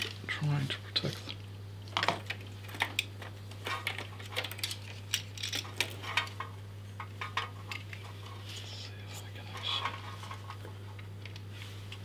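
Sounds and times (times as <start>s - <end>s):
steady low hum: 0.0s - 12.0s
hands handling computer parts: 1.9s - 8.4s.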